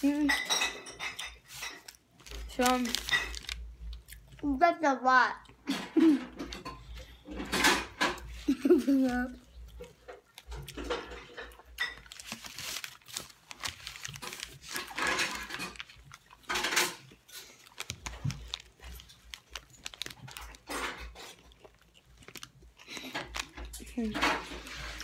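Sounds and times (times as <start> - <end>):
food handling clicks and rustles: 0.0 - 4.5, 5.6 - 25.0
chewing and mouth noises: 1.3 - 4.5, 8.2 - 25.0.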